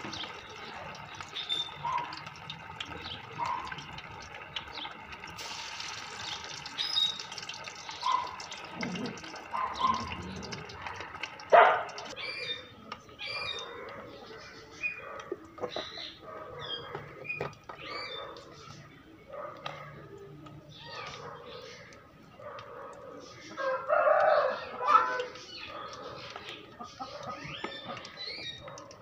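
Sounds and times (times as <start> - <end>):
fish deep-frying in hot oil: 0.0 - 13.6, 25.1 - 29.0.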